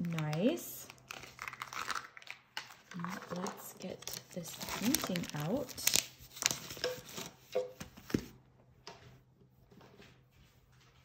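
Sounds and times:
plastic crinkling rustles: 0:00.0 - 0:07.6.

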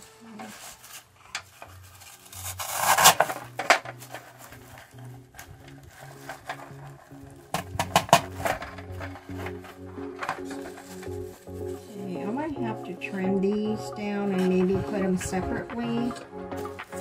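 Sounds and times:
artificial greenery rustling on metal: 0:00.0 - 0:12.5, 0:16.6 - 0:17.0
quiet background music: 0:00.0 - 0:17.0.

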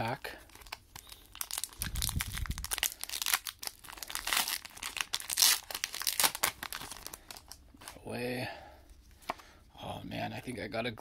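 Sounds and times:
foil wrapper crinkling: 0:00.2 - 0:08.0.

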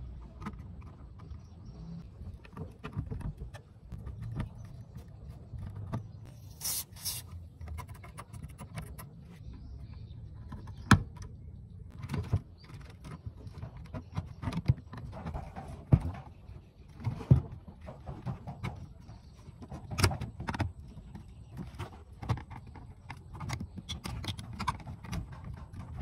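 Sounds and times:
brief hiss: 0:06.5 - 0:07.3.

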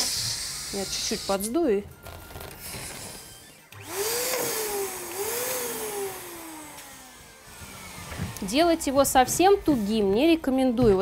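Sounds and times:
air hissing out of balloon: 0:00.0 - 0:01.6
squealing balloon tone: 0:00.0 - 0:03.8.

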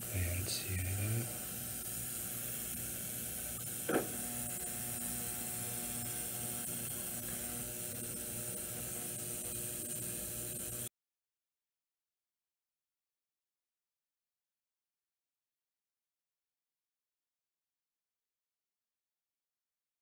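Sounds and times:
ultrasonic cleaner buzzing: 0:00.0 - 0:10.9
short knock: 0:03.9 - 0:04.2.

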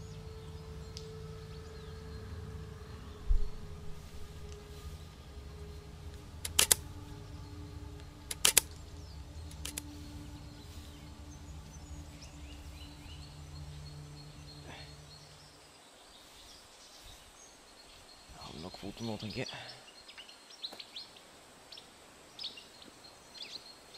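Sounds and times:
low steady hum: 0:00.0 - 0:16.4
camera shutter clicks: 0:06.4 - 0:06.8, 0:08.3 - 0:08.8, 0:09.5 - 0:09.8.

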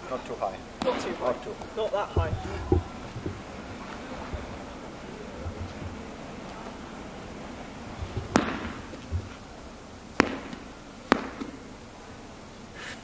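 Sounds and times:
medicine ball hitting floor: 0:08.0 - 0:09.3, 0:10.2 - 0:11.6.

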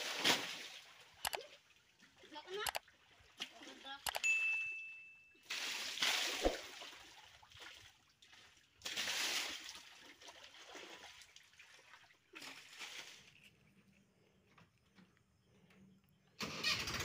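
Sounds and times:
water dripping and trickling: 0:00.0 - 0:04.3, 0:05.4 - 0:14.3
water splashing against metal: 0:05.4 - 0:13.6.

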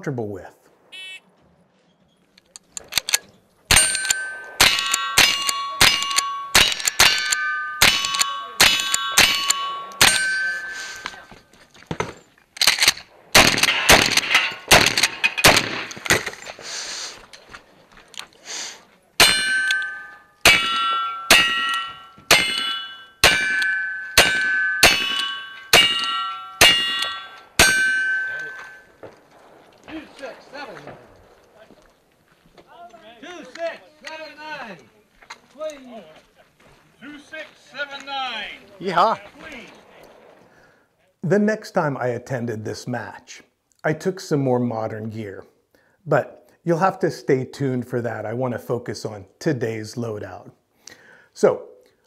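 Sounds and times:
rifle shots: 0:02.8 - 0:10.7, 0:11.9 - 0:16.5, 0:19.2 - 0:31.8
revolver gunshots: 0:03.7 - 0:10.7, 0:12.7 - 0:16.4, 0:19.2 - 0:31.6
steel plate ringing ding: 0:03.7 - 0:11.2, 0:19.2 - 0:28.9.

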